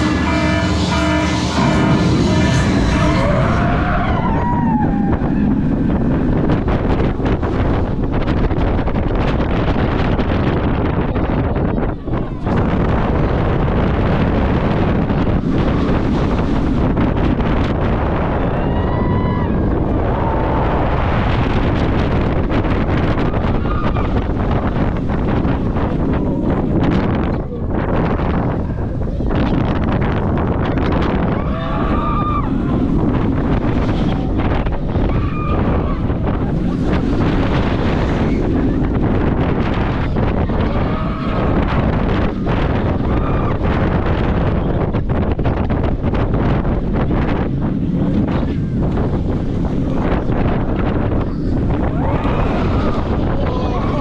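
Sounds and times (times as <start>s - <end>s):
roller coaster train rumbling: 0.0s - 54.0s
wind rushing over microphone: 0.0s - 54.0s.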